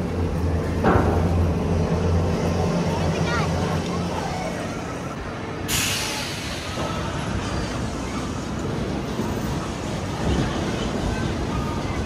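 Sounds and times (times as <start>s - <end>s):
roller coaster on track: 0.0s - 12.0s
sudden rush of noise: 5.6s - 7.9s.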